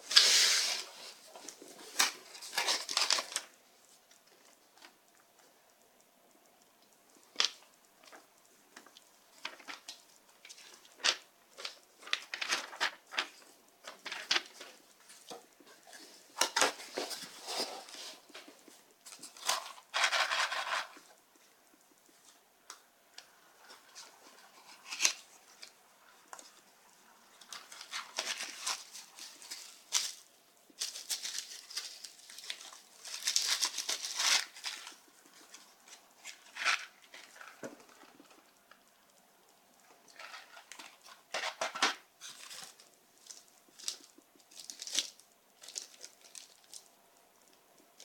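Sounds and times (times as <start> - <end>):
paper and cardboard rustling: 0.0 - 5.0, 9.3 - 21.5, 23.6 - 26.6, 27.3 - 38.6, 40.1 - 46.9
plastic packaging crinkling: 0.0 - 5.0, 7.2 - 21.2, 23.6 - 26.6, 27.2 - 38.9, 39.8 - 48.0.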